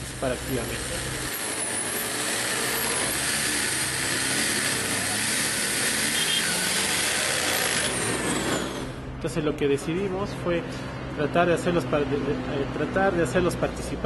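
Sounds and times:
power drill boring into wood: 0.0 - 9.0.

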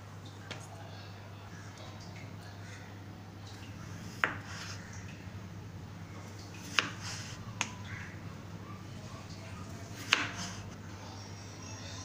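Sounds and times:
knife slicing potato: 4.1 - 4.8, 6.6 - 7.7, 9.8 - 10.8.

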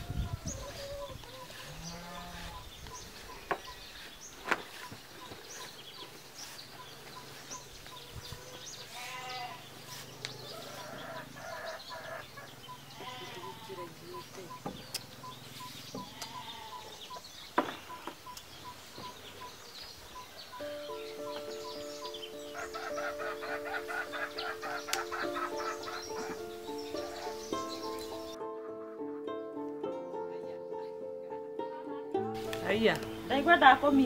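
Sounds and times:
farm animals bleating: 0.0 - 3.0, 8.7 - 14.6, 15.2 - 18.3, 22.4 - 28.3
faint high chirp: 12.7 - 22.2.

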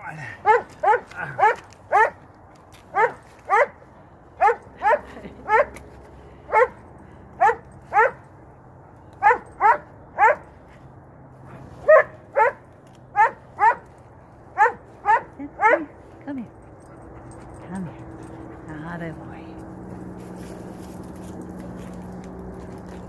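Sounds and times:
dog barking: 0.4 - 2.2, 2.9 - 3.8, 4.4 - 5.7, 6.5 - 6.8, 7.4 - 8.2, 9.2 - 10.5, 11.8 - 12.6, 13.2 - 13.9, 14.6 - 15.9.

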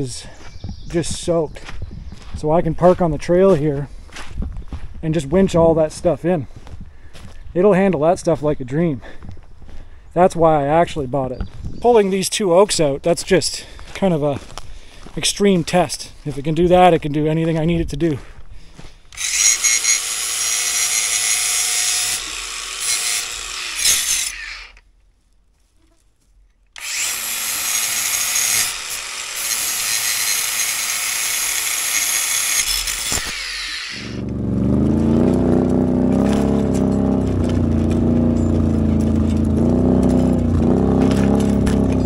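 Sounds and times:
atv engine revving under load: 33.9 - 42.0.

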